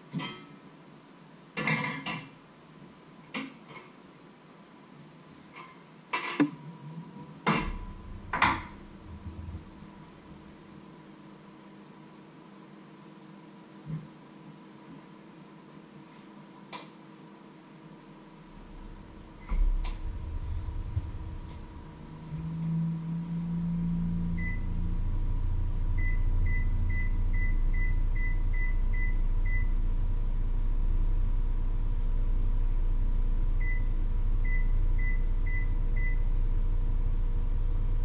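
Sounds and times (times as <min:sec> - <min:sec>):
microwave oven humming: 0:06.6 - 0:15.8, 0:17.0 - 0:38.0.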